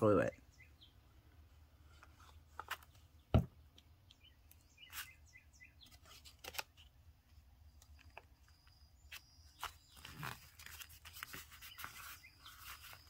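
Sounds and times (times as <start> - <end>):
faint bird chirps: 0.0 - 1.3, 4.1 - 6.2, 7.6 - 13.0
dull thump: 3.3 - 3.6
paper rustling: 5.8 - 13.0.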